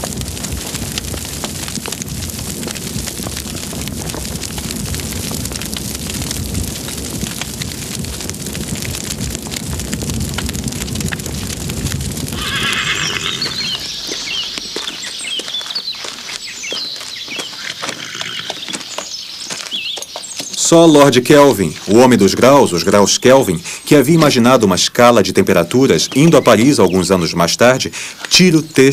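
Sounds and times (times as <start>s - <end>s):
fire roaring and crackling: 0.0s - 28.9s
hooves clip-clopping: 0.0s - 28.9s
horse whinnying: 12.3s - 14.0s, 17.6s - 18.8s.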